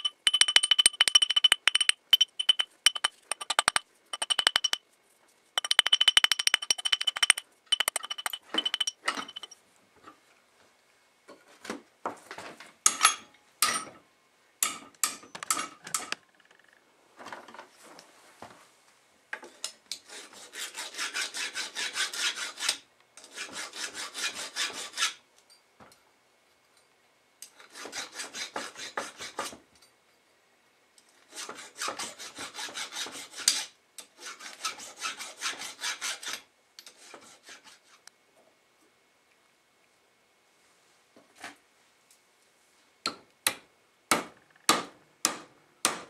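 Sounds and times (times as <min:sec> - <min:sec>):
hand file rasping on metal: 0:00.0 - 0:04.8, 0:05.6 - 0:09.4, 0:20.0 - 0:25.2, 0:27.6 - 0:29.5, 0:31.3 - 0:38.0.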